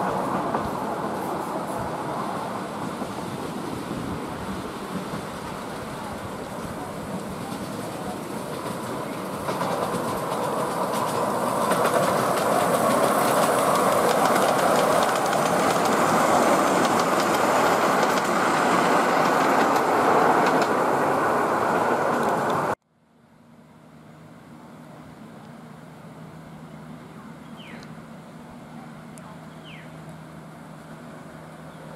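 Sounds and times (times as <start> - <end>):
train wheels rumbling on rails: 0.0 - 22.8.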